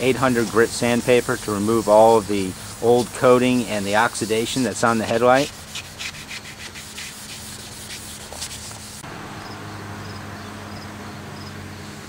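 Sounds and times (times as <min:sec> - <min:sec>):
sandpaper scratching plastic: 0:00.0 - 0:09.0.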